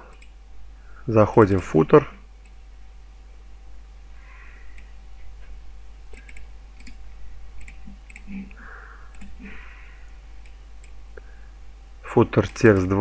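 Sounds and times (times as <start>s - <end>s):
faint electrical hum: 0.0s - 13.0s
computer mouse clicking: 0.1s - 0.4s, 6.1s - 7.0s, 7.6s - 8.3s, 9.1s - 9.4s.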